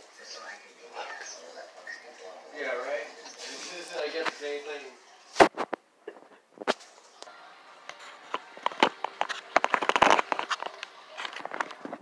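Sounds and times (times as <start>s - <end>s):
footsteps: 7.8s - 12.0s
phone rustling and knocking: 8.6s - 10.7s.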